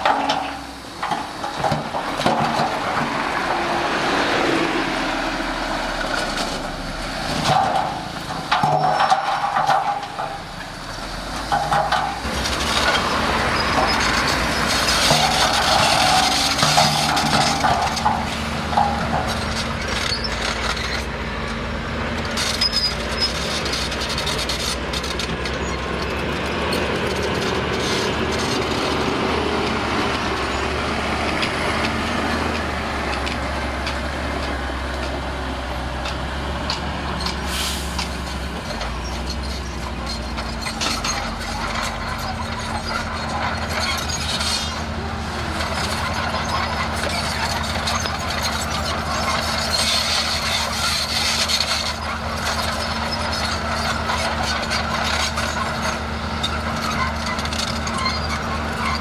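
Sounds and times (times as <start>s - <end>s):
clanks and rattles: 0.0s - 3.6s, 6.0s - 10.8s, 11.4s - 21.2s, 35.9s - 59.0s
bulldozer diesel engine running: 0.0s - 59.0s
short hiss: 37.5s - 38.0s.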